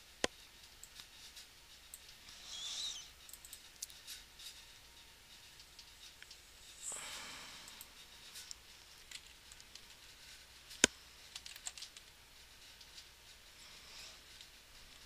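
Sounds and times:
computer mouse clicks: 0.2s - 4.2s.

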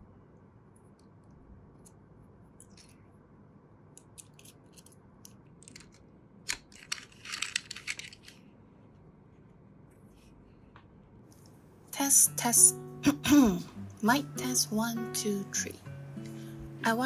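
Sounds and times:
metal parts clicking and scraping: 4.2s - 8.4s.

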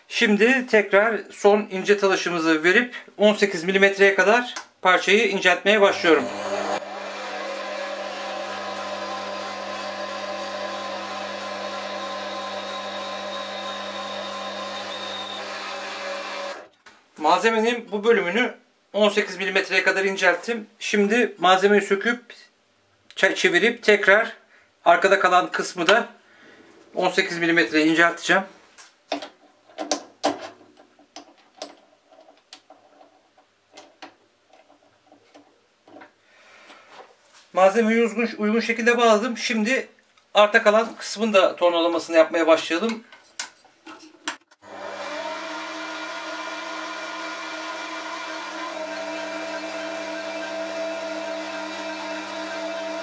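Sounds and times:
lathe running: 5.9s - 16.7s, 44.6s - 53.0s.

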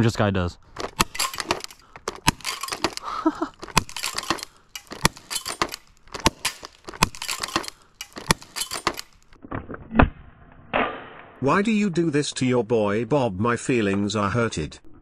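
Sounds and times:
sharp clicks and clinks of handled gear: 0.7s - 9.4s.

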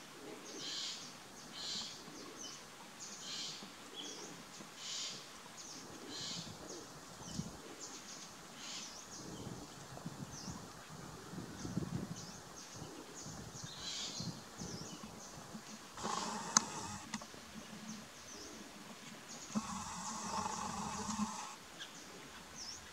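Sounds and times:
small birds chirping: 11.5s - 22.9s.

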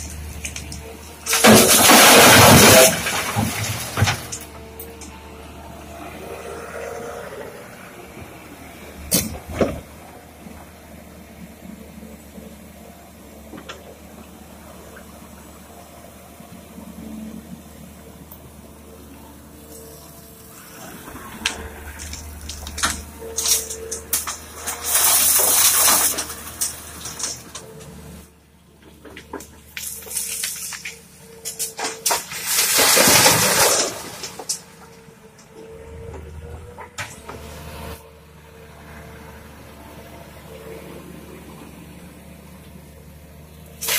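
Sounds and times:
rattling rush of gravel: 0.0s - 5.0s, 19.6s - 28.2s, 29.2s - 38.0s
excavator diesel engine running: 0.0s - 43.9s.

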